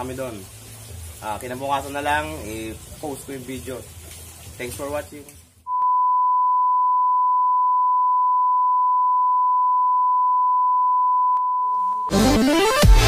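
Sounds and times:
electronic beep tone: 5.7 - 12.2.

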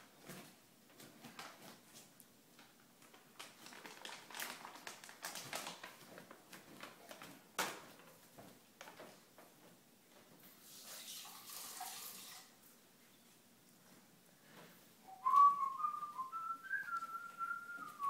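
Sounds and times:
dog paws tapping on hardwood floor: 0.1 - 10.4.

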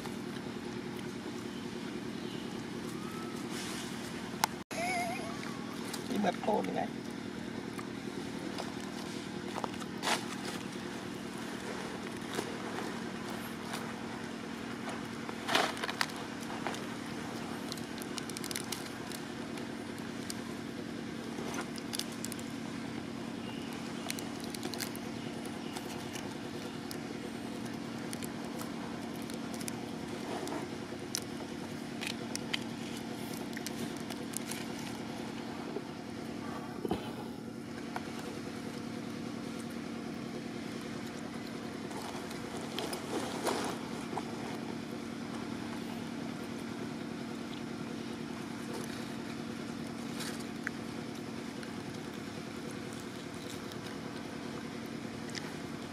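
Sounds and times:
steady motor hum: 0.0 - 55.9
plastic wrapper crinkling: 17.6 - 19.3, 24.0 - 26.7.

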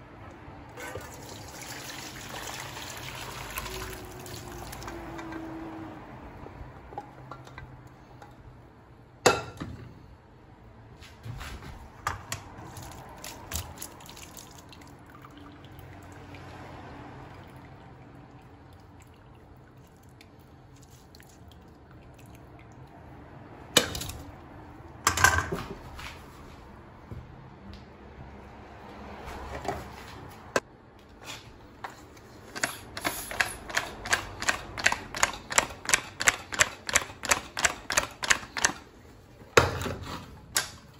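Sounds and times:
liquid dripping and trickling: 1.0 - 5.3, 12.9 - 23.4.

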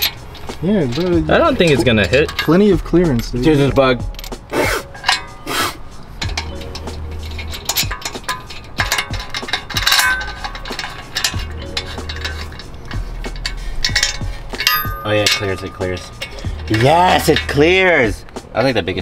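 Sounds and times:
metal clinks of lug bolts: 0.0 - 18.8.

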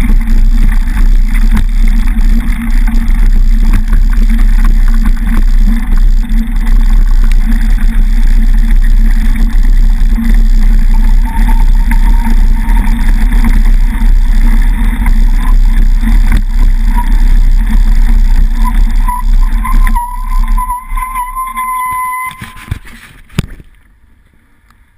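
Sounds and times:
bike rumbling on dirt track: 0.0 - 24.9
thin steady whistle: 18.5 - 22.8.

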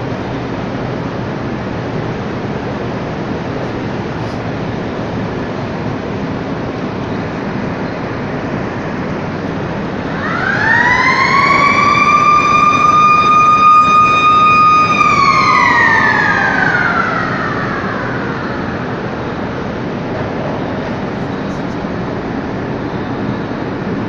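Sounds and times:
industrial machinery roar: 0.0 - 24.0
motor-driven siren wailing: 4.8 - 21.6.

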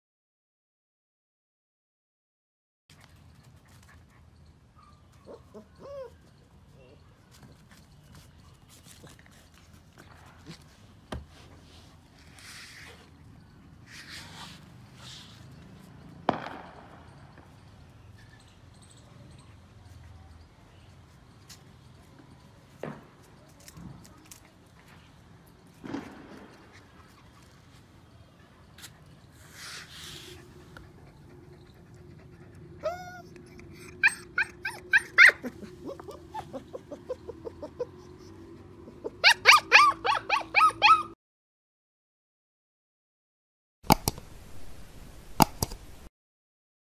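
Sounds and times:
puppy paws on stone paving: 2.9 - 38.3
puppy whining and yelping: 3.9 - 6.9, 29.8 - 41.2
sharp knock: 16.3 - 17.7.

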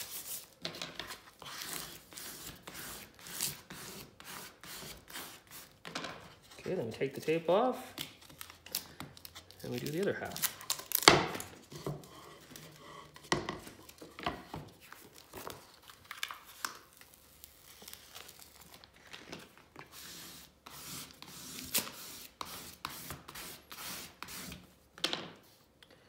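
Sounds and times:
backing paper crackling peeled: 8.0 - 11.1, 14.8 - 19.7
paper rustling and crinkling: 13.8 - 19.9.

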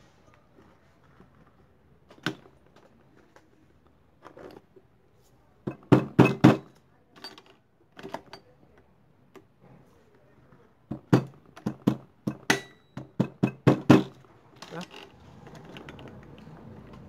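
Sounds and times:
metal parts clicking and knocking: 5.7 - 8.4.

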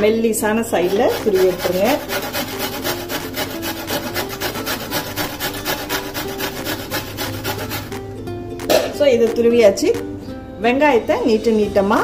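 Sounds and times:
carrot rasping on metal grater: 0.7 - 8.0.

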